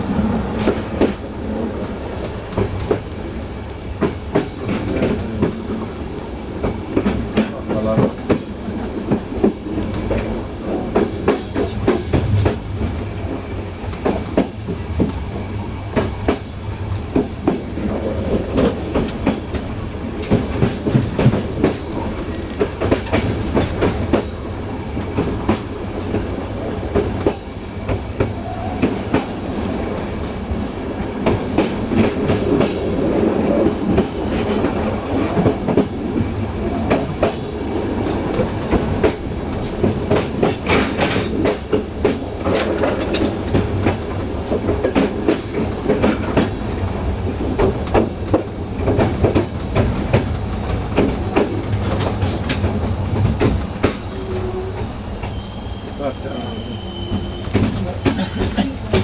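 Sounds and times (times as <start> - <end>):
train wheels rumbling on track: 0.0 - 59.0
wheels clattering over rail joints: 38.4 - 46.6.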